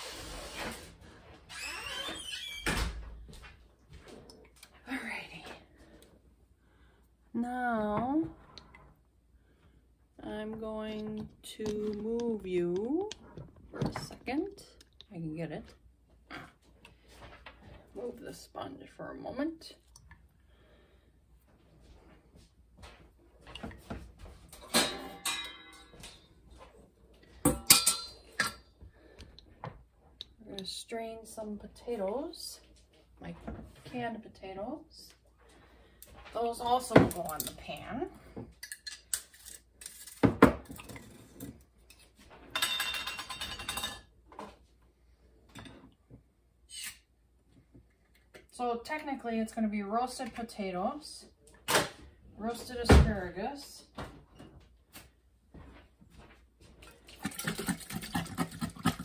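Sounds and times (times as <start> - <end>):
dishes and utensils clinking: 24.6 - 26.3, 27.5 - 28.7, 41.9 - 44.1
metal kitchenware clattering: 24.6 - 26.3, 27.5 - 28.7, 42.5 - 44.1.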